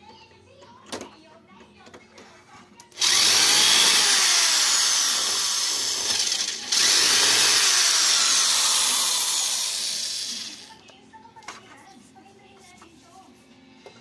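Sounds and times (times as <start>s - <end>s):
electric screwdriver running: 3.0s - 10.7s.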